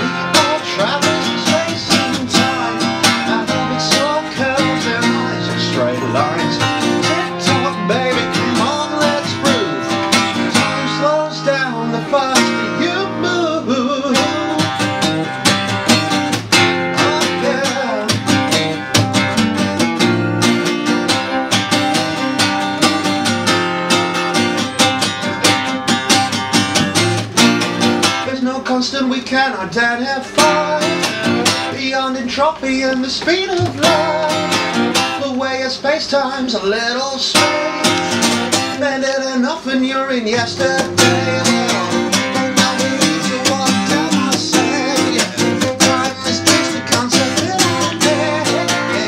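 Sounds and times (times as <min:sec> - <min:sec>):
man singing: 0:00.0 - 0:20.1, 0:28.0 - 0:49.0
acoustic guitar strumming: 0:00.0 - 0:49.0.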